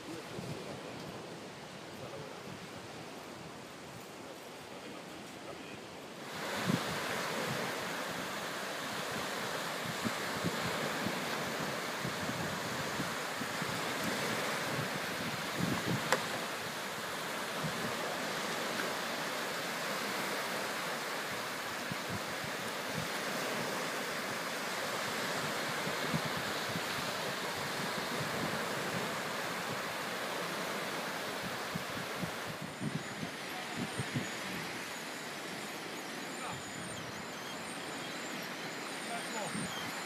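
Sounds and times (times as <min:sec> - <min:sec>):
wind on microphone: 0:00.0 - 0:03.2, 0:06.3 - 0:19.0, 0:19.6 - 0:34.8
waves washing onto beach: 0:00.0 - 0:40.0.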